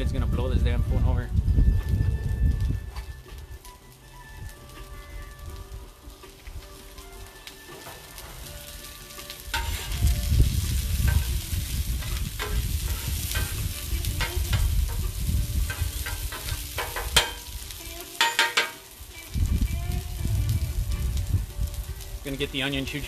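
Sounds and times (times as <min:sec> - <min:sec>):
wind buffeting microphone: 0:00.0 - 0:03.7, 0:09.5 - 0:17.8, 0:19.0 - 0:23.0
food sizzling on a griddle: 0:01.3 - 0:23.0.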